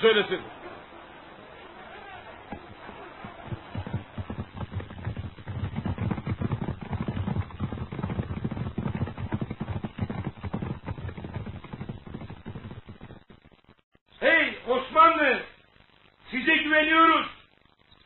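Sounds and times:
horse hoofbeats galloping: 0.0s - 13.5s.

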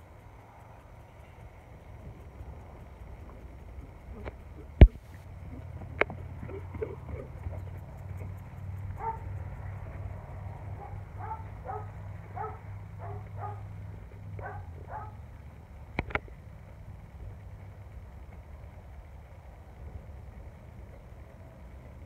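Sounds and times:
steady low hum: 0.0s - 22.0s
dog barking: 9.0s - 9.3s, 10.8s - 13.7s, 14.4s - 15.2s.

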